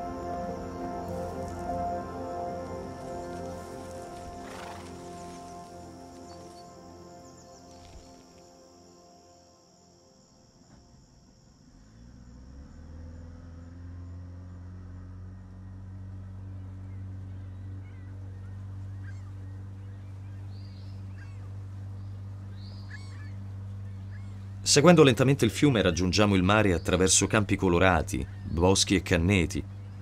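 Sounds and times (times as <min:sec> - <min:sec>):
motorboat engine hum: 0:00.0 - 0:30.0
birds calling: 0:02.5 - 0:08.5, 0:15.4 - 0:30.0.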